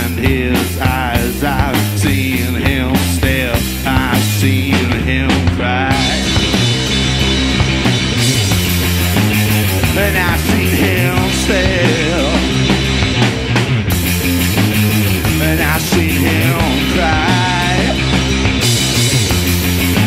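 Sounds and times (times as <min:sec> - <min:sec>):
bass guitar: 0:00.0 - 0:20.0
drum kit: 0:00.0 - 0:20.0
electric guitar: 0:00.0 - 0:20.0.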